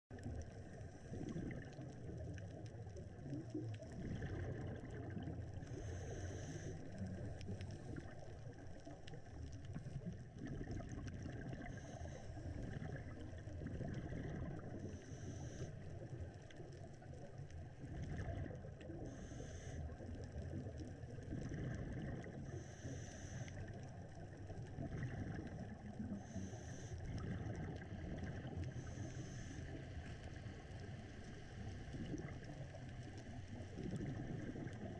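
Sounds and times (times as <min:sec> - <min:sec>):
low underwater rumble: 0:00.1 - 0:34.9
bubbling exhale hiss: 0:00.6 - 0:16.4, 0:17.8 - 0:34.9
diver breathing through regulator: 0:05.6 - 0:08.2, 0:11.6 - 0:12.6, 0:14.8 - 0:16.0, 0:19.0 - 0:20.1, 0:22.4 - 0:23.8, 0:26.0 - 0:27.6, 0:28.6 - 0:30.7.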